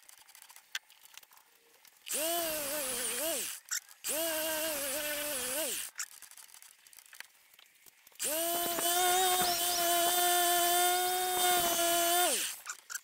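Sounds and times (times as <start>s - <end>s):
angle grinder whining: 2.1s - 5.9s, 8.2s - 12.7s.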